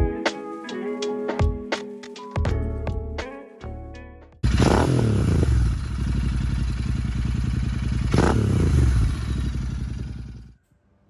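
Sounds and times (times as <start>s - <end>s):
motorcycle throttle blips: 4.4s - 10.5s
motorcycle engine running: 4.4s - 10.6s.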